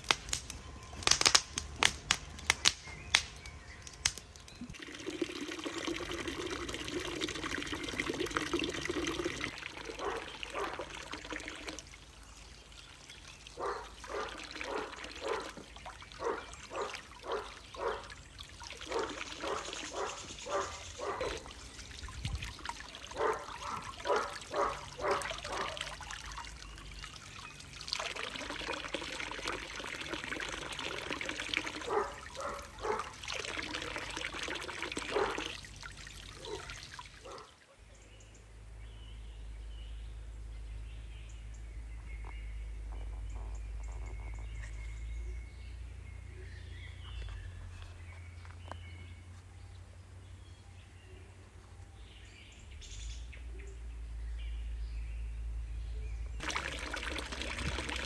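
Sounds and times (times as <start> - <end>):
water pouring and trickling: 3.4 - 37.6, 56.4 - 58.0.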